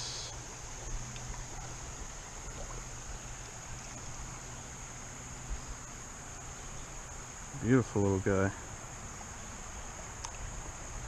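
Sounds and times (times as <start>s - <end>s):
high-pitched insect drone: 0.0s - 1.1s
flowing creek water: 0.0s - 11.0s.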